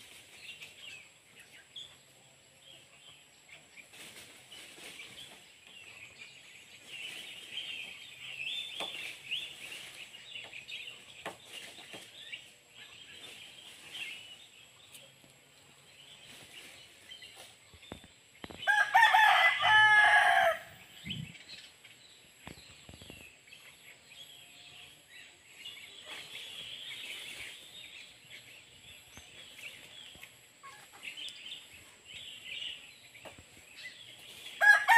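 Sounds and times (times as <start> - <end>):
birds chirping: 0.0 - 34.9
rooster crowing: 18.6 - 20.8, 34.6 - 34.9.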